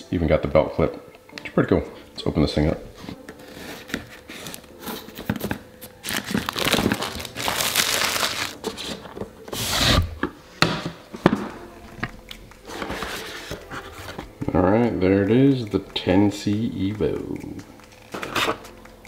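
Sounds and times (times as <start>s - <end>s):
plastic wrapping crinkling and tearing: 3.4s - 10.0s.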